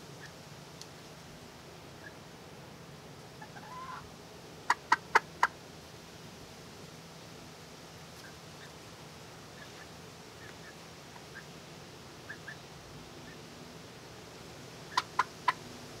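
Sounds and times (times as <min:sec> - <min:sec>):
hen clucking: 0:03.4 - 0:04.0, 0:04.7 - 0:05.6, 0:09.6 - 0:11.5, 0:12.3 - 0:12.6, 0:14.9 - 0:15.6.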